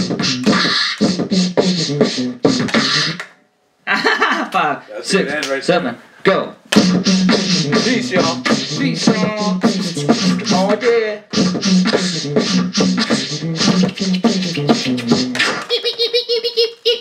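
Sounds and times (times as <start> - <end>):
fast warbling vocal sound: 0.0 - 3.3, 6.8 - 16.0
beatboxing vocal drums: 0.0 - 3.4, 6.7 - 15.7
low vocal bass line: 6.8 - 15.4.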